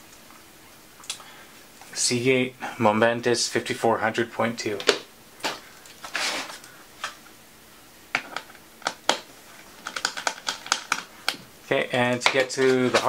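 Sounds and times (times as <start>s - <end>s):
scraping rustle: 6.0s - 6.7s
sharp clicks and taps: 8.1s - 11.5s.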